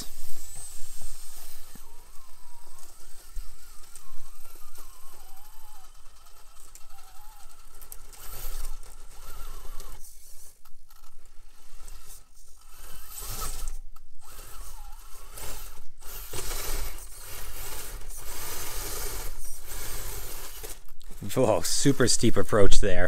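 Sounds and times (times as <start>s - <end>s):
electric motor whining: 0.0s - 23.0s.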